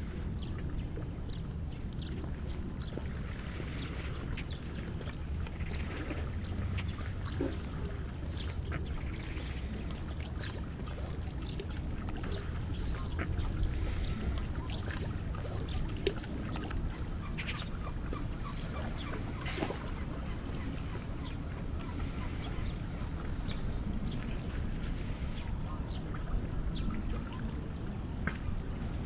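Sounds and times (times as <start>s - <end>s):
ducks calling: 16.5s - 26.2s.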